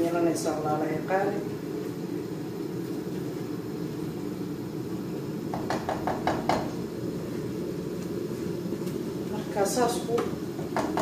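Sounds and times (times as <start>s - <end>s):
steady low hum: 0.0s - 11.0s
spatula knocking against pot: 10.7s - 11.0s.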